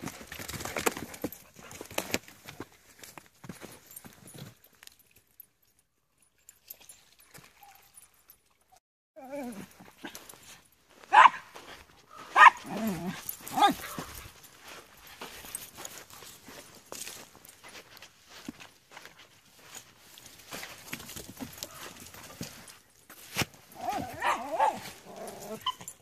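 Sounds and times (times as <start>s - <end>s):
dogs growling: 9.2s - 9.9s, 12.6s - 13.9s, 23.7s - 25.7s
small dogs barking: 11.1s - 11.5s, 12.1s - 14.2s, 23.8s - 26.0s.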